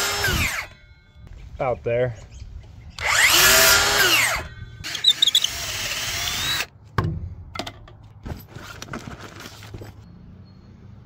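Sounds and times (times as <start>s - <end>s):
power tool motor running: 0.0s - 0.8s, 3.0s - 6.7s.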